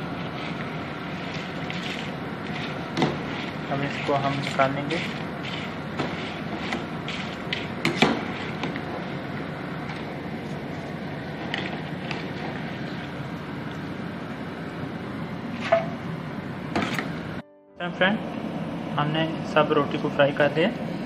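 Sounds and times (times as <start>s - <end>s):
spatula scraping and knocking pan: 0.2s - 9.0s.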